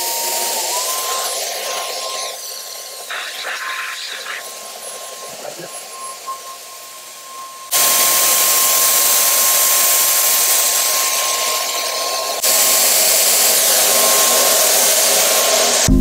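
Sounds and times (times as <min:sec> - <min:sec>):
paint sprayer turbine running: 0:00.0 - 0:15.9.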